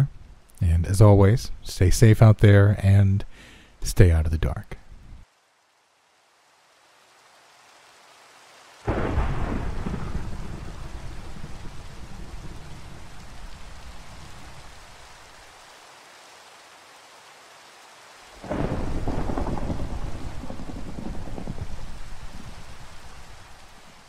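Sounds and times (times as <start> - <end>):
rain hissing: 0.0 - 24.0
loud thunderclap: 8.9 - 13.1, 18.4 - 22.9
thunder rumbling: 8.9 - 14.8, 18.4 - 23.8.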